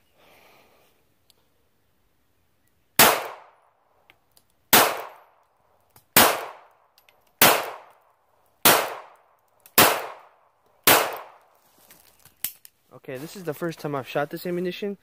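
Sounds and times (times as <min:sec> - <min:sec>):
pistol shots: 0:03.0 - 0:03.6, 0:04.7 - 0:05.3, 0:06.1 - 0:06.7, 0:07.4 - 0:08.0, 0:08.6 - 0:09.2, 0:09.8 - 0:11.4.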